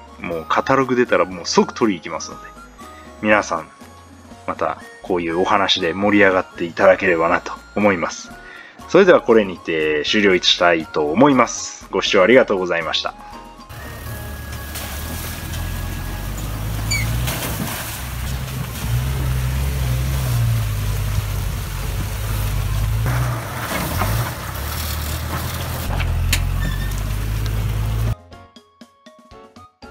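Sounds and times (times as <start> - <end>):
engine running: 13.7 - 28.2.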